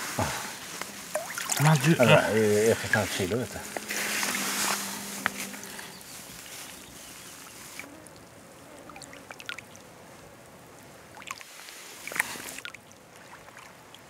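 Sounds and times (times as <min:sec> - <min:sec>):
fish splashing: 0:00.0 - 0:08.3, 0:11.1 - 0:13.9
flowing stream hiss: 0:00.0 - 0:14.0
water dripping and lapping: 0:00.0 - 0:14.0.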